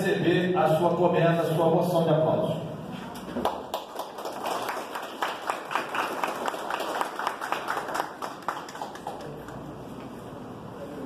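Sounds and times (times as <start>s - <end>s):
small group clapping: 3.2s - 9.8s.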